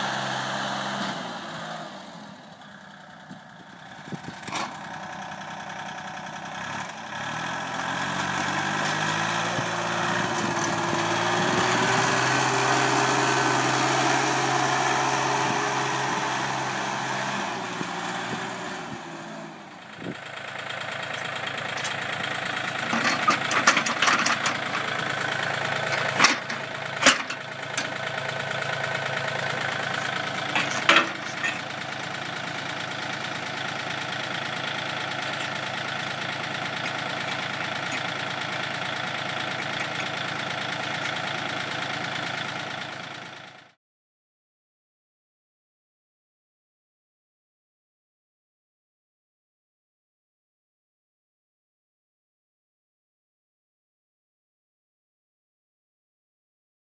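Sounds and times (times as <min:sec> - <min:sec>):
tractor diesel engine: 0:00.0 - 0:43.8
metal clanks of snow blade: 0:04.5 - 0:04.8, 0:22.9 - 0:25.0, 0:25.8 - 0:28.0, 0:30.0 - 0:31.8.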